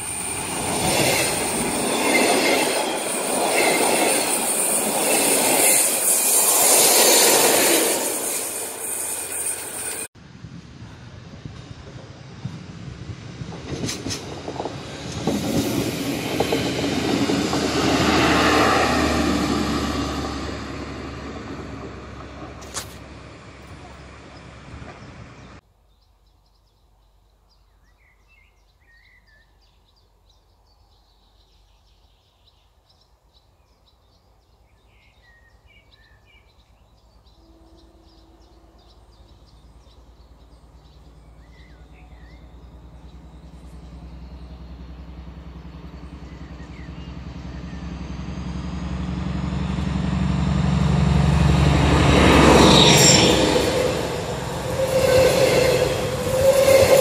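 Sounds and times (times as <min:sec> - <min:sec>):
train wheels whining: 0:00.0 - 0:10.1, 0:11.4 - 0:23.0, 0:41.0 - 0:57.0
diesel locomotive engine rumble: 0:00.0 - 0:25.6, 0:37.1 - 0:57.0
diesel railcar: 0:00.0 - 0:25.6, 0:33.5 - 0:57.0
birds chirping: 0:23.8 - 0:48.7.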